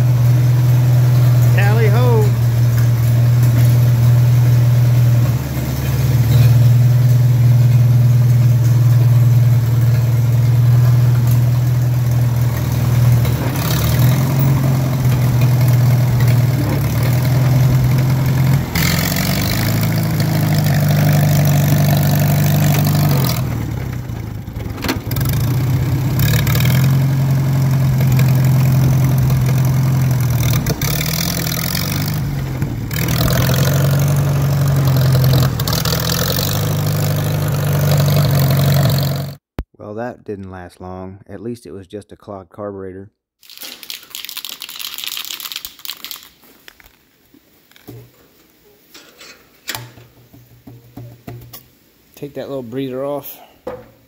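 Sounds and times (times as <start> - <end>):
tractor engine running: 0.0 - 39.6.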